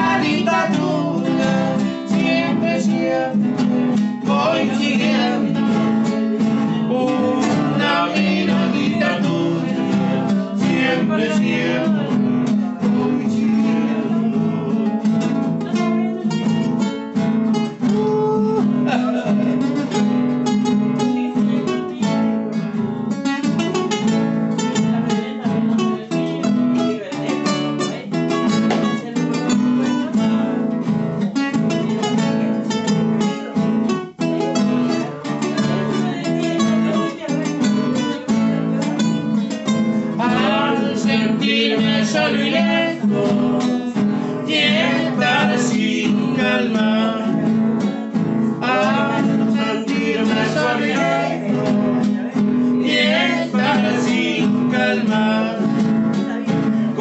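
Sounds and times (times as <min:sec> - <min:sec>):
acoustic guitar plucked melody: 0:00.0 - 0:57.0
acoustic guitar strummed chords: 0:00.0 - 0:57.0.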